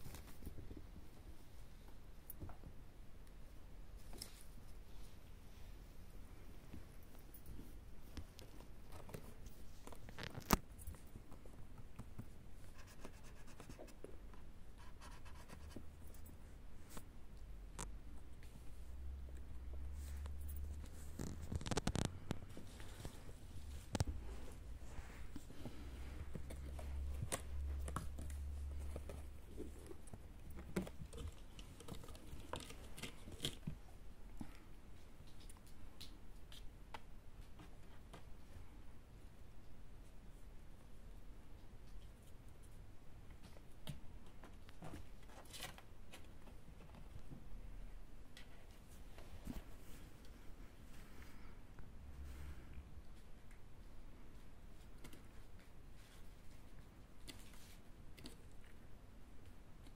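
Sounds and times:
kittens scratching cardboard: 12.0s - 14.1s, 20.0s - 33.9s.

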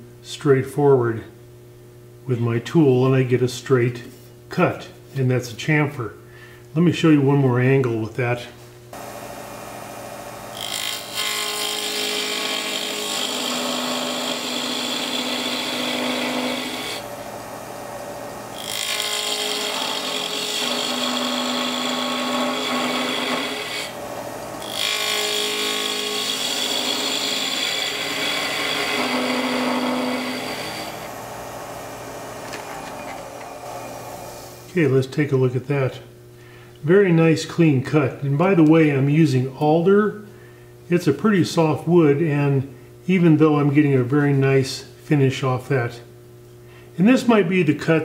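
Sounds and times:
wood lathe running: 9.0s - 34.8s
gouge shaving wood: 10.6s - 34.0s.

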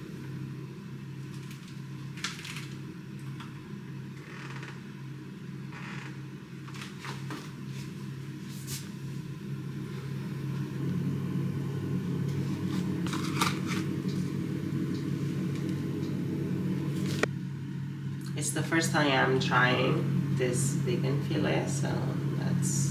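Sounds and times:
steady low hum: 0.0s - 22.9s
cardboard and plastic rustling: 6.7s - 7.9s, 12.7s - 13.9s.

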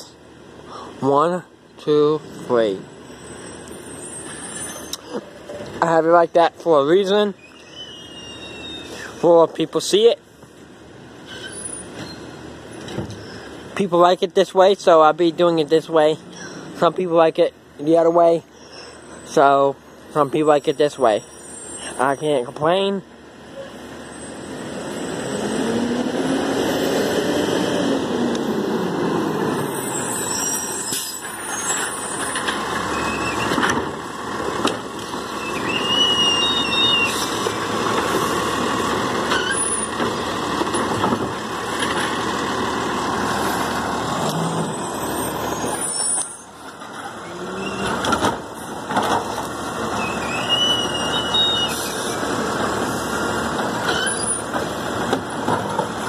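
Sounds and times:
high brake squeals: 2.9s - 5.2s, 7.2s - 9.2s, 11.2s - 13.6s, 16.3s - 16.7s, 18.4s - 22.5s, 23.5s - 25.5s, 29.5s - 33.6s, 35.2s - 37.4s, 39.3s - 40.0s, 44.3s - 46.6s, 47.2s - 48.0s, 49.8s - 52.2s, 53.8s - 54.5s
diesel engine running: 31.2s - 56.0s
truck arm knocking carts: 37.1s - 42.6s, 47.8s - 51.7s, 53.4s - 56.0s.

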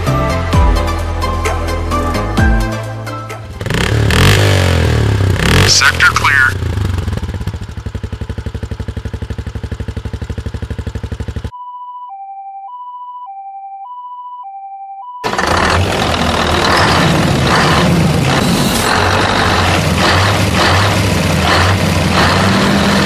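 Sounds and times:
truck engine rumble: 2.9s - 11.5s, 15.2s - 23.0s
small engine puttering: 15.2s - 23.0s.

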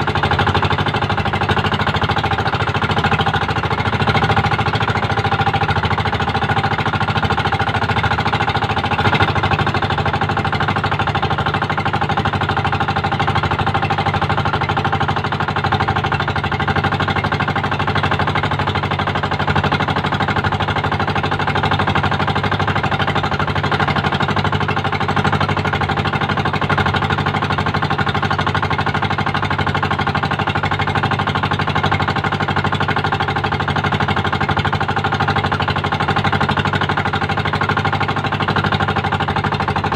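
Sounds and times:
boat engine knocking: 0.0s - 39.9s.

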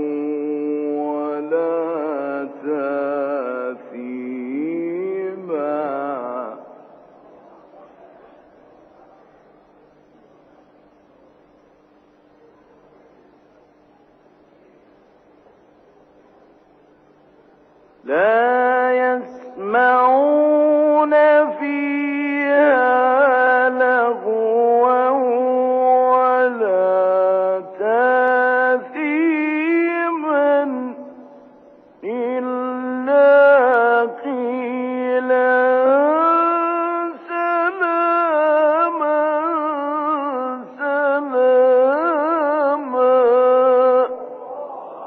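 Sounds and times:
man chanting: 0.0s - 7.9s, 18.0s - 31.2s, 32.0s - 45.0s.

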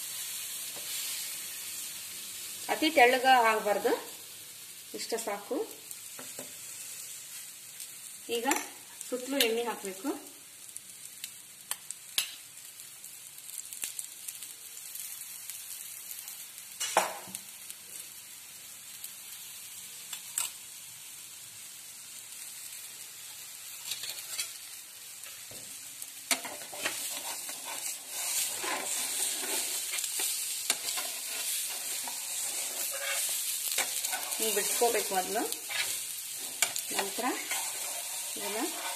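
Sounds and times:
oil sizzling in a pan: 0.0s - 38.9s.

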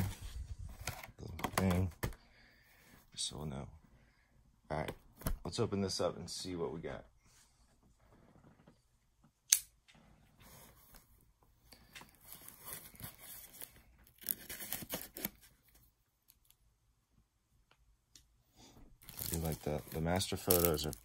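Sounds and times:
sharp click: 9.5s - 9.7s
plastic wrap crinkling and tearing: 12.3s - 15.4s, 19.0s - 21.0s.

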